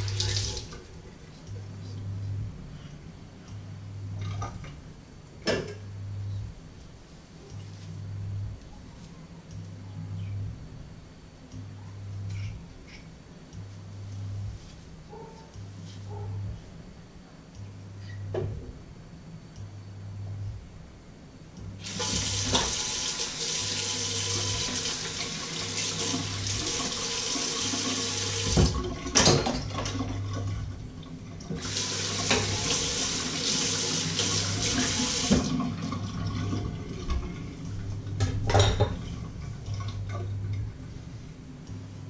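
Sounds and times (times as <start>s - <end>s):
pulsing low hum: 0.9s - 21.9s, 36.5s - 42.0s.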